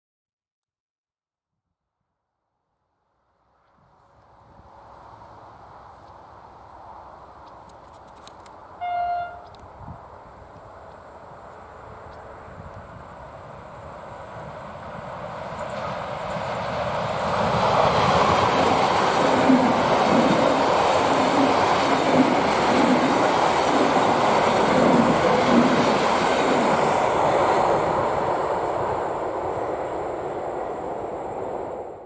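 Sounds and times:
train passing at speed: 0:03.3 - 0:32.0.

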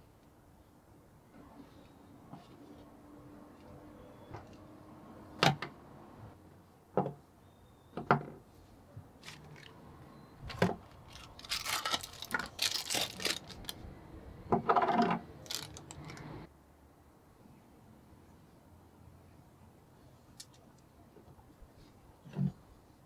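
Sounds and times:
packaging rustling and crinkling: 0:09.2 - 0:09.7, 0:10.8 - 0:13.8, 0:15.4 - 0:16.3.

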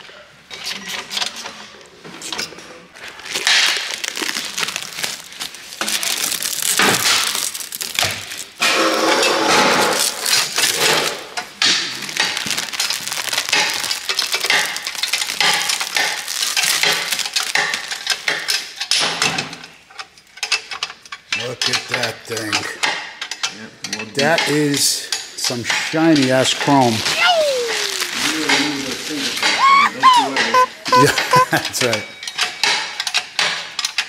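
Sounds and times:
plastic wrap crinkling: 0:02.3 - 0:18.7, 0:26.5 - 0:31.7.

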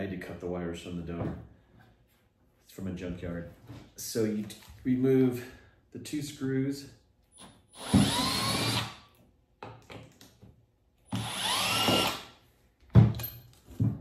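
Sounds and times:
cordless drill whining: 0:07.4 - 0:09.0, 0:11.1 - 0:12.4.

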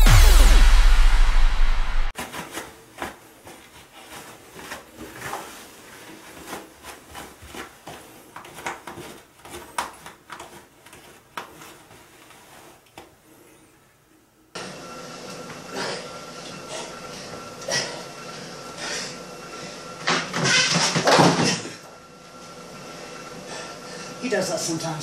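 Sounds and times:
electronic music sting: 0:00.0 - 0:02.1
toilet paper rustling and crinkling: 0:02.2 - 0:13.0.

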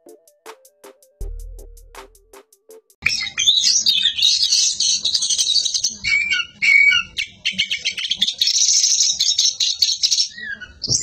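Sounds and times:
bird singing chattering notes: 0:03.0 - 0:11.0
bird whistled notes: 0:03.0 - 0:11.0.

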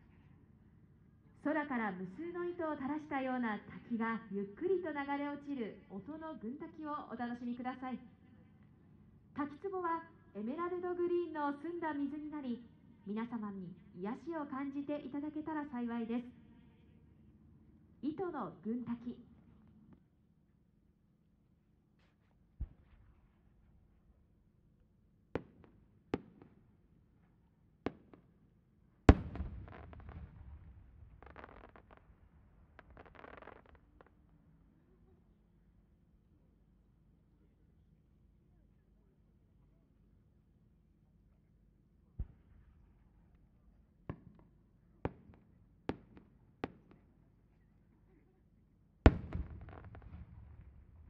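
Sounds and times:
firework small sharp pops: 0:25.4 - 0:26.6, 0:27.9 - 0:28.3, 0:29.1 - 0:34.2, 0:49.1 - 0:50.8
firework sparks crackling: 0:31.1 - 0:32.1, 0:32.7 - 0:34.0.

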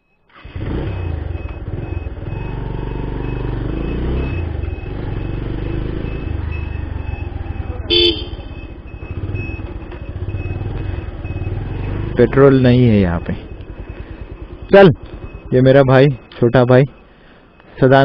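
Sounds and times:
motorcycle engine running: 0:00.4 - 0:17.4
short horn toot: 0:07.9 - 0:08.4.

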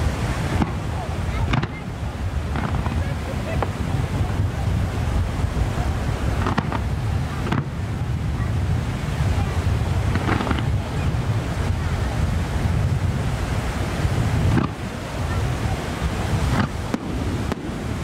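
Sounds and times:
wind rumble on microphone: 0:00.0 - 0:18.0
distant firework pops: 0:00.5 - 0:01.8, 0:02.5 - 0:04.4, 0:06.4 - 0:07.8, 0:10.0 - 0:10.9, 0:14.5 - 0:14.8, 0:16.5 - 0:17.8.

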